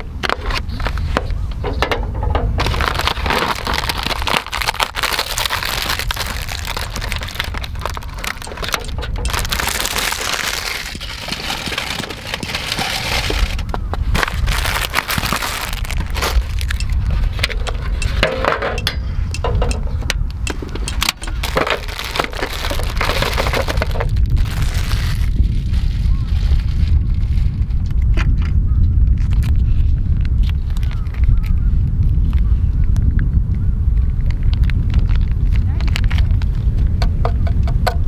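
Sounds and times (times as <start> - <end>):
steady low rumble: 0.0 - 38.0
foil tray clinking: 1.8 - 13.6, 14.2 - 19.8, 20.5 - 24.8
plastic packaging crinkling: 2.6 - 18.9, 20.5 - 28.0, 30.2 - 31.6, 34.2 - 36.5.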